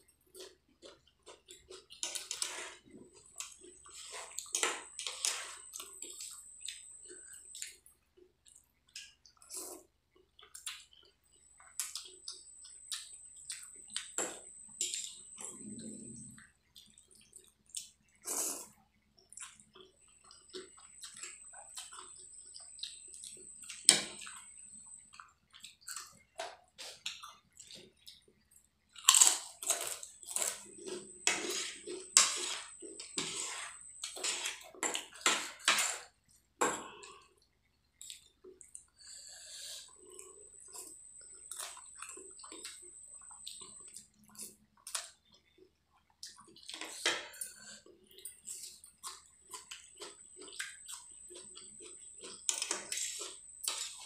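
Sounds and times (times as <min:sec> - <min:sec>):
wet chewing and slurping noodles: 0:00.1 - 0:54.0
potato chip crunching: 0:29.0 - 0:31.0.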